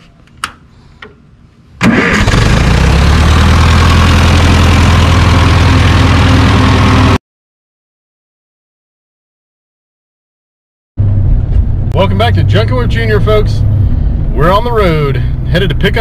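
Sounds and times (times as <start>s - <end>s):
tractor engine idling: 1.9s - 7.2s.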